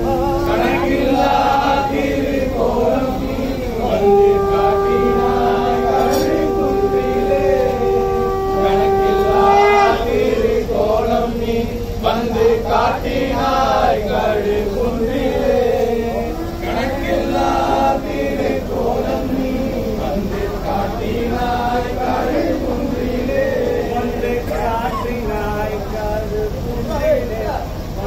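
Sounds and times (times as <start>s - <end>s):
group of men chanting: 0.0s - 28.0s.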